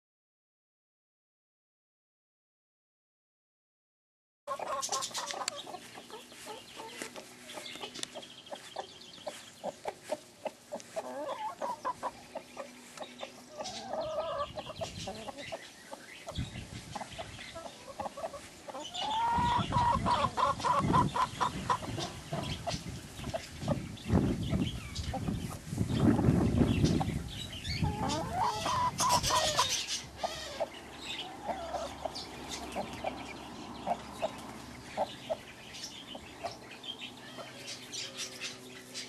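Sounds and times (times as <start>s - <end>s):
hen clucking: 4.5s - 39.0s.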